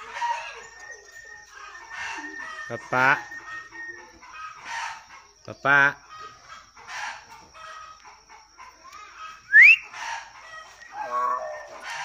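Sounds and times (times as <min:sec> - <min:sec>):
bird sharp rising whistle: 0:09.5 - 0:09.9.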